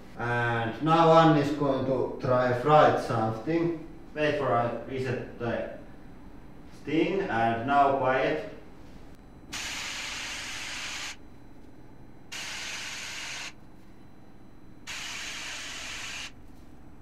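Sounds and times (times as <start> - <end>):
white noise hiss bursts: 9.5 - 11.2, 12.3 - 13.6, 14.9 - 16.4.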